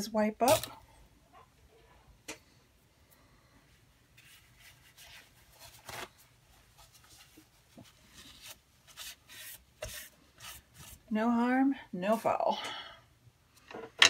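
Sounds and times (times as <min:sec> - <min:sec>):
tissue rubbing paper: 0:04.2 - 0:11.1.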